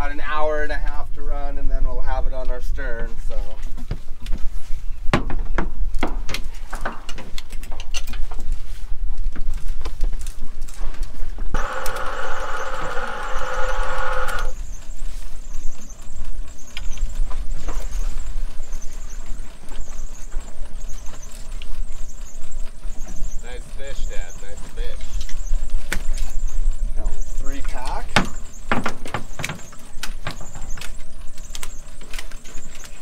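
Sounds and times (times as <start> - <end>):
loud squeal: 11.6 - 14.6.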